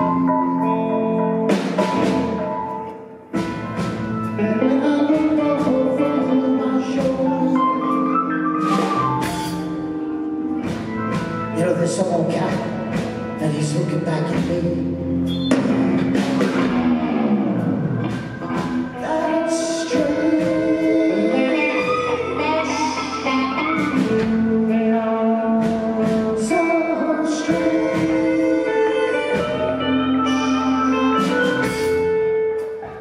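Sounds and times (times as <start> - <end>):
rock band playing blues-rock: 0.0 - 33.0
person singing: 4.3 - 10.1, 18.2 - 32.2.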